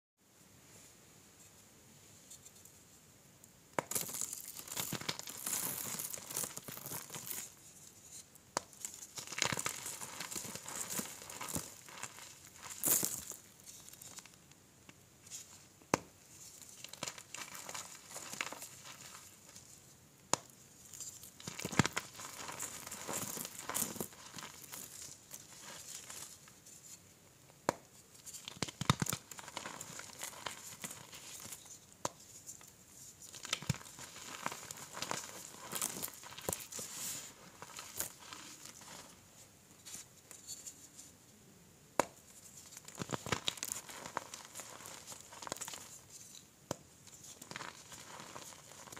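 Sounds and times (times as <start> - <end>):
hands crunching chalk: 3.8 - 7.6, 8.6 - 14.3, 15.9 - 27.0, 27.7 - 39.2, 42.0 - 48.9
chalk chunks snapping: 8.6 - 13.4, 27.7 - 32.2, 33.3 - 38.9, 42.0 - 46.0.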